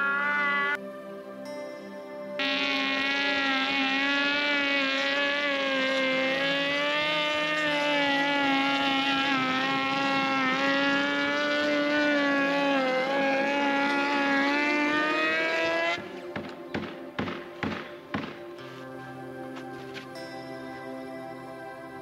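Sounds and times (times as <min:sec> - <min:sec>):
power tool motor whining: 0:02.4 - 0:16.0.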